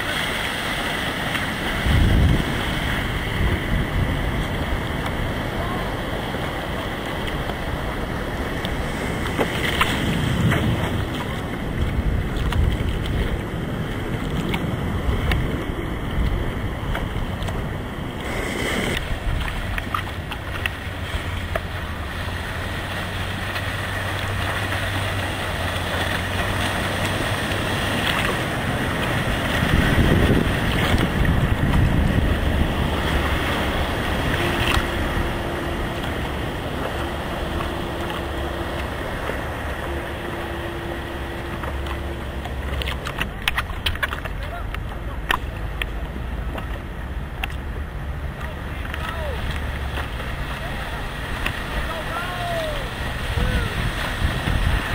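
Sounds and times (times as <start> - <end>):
waves breaking: 0.0 - 54.9
wind buffeting microphone: 0.9 - 54.9.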